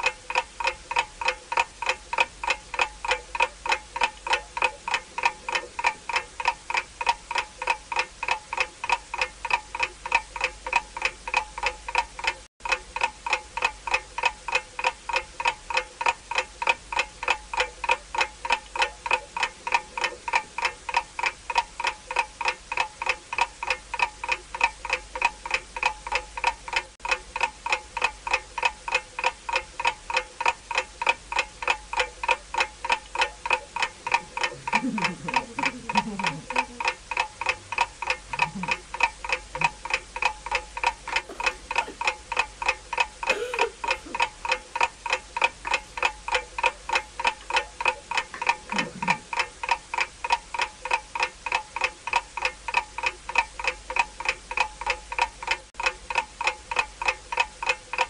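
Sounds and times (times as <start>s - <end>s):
clock timer ticking: 0.0s - 58.0s
faint voice: 34.4s - 36.9s, 41.2s - 42.0s, 43.3s - 44.2s, 48.7s - 49.3s.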